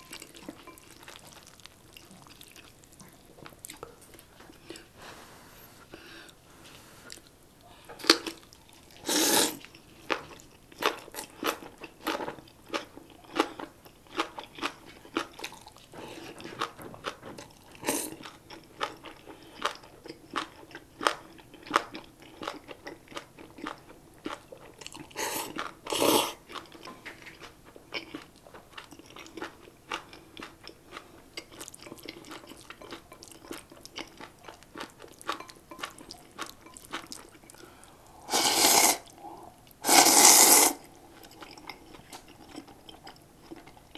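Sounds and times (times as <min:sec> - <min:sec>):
wet chewing and crunching: 0:00.0 - 0:04.9, 0:07.1 - 0:37.9, 0:39.0 - 0:43.9
person slurping noodles: 0:09.0 - 0:09.6, 0:25.2 - 0:26.4, 0:38.1 - 0:40.8.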